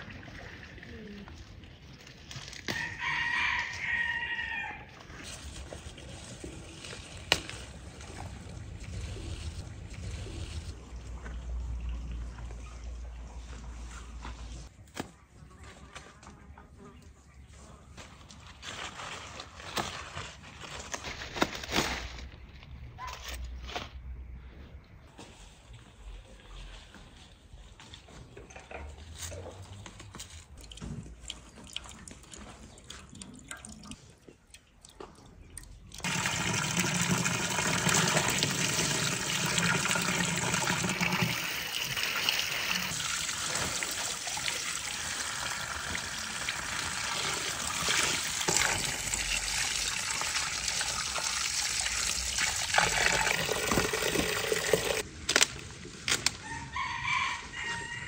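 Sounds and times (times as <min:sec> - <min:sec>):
water splashing in a metal basin: 0:30.6 - 0:55.0.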